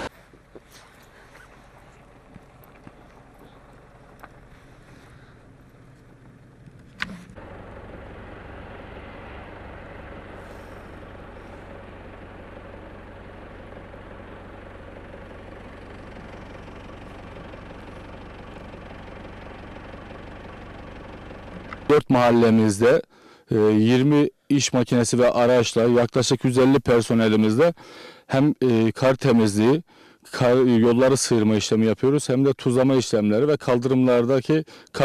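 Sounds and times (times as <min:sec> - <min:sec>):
engine running with low hum: 0:00.0 - 0:24.2.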